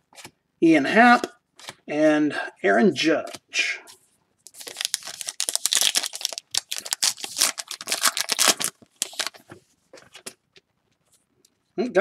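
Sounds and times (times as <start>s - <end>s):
plastic wrapper tearing and crinkling: 4.5s - 9.4s.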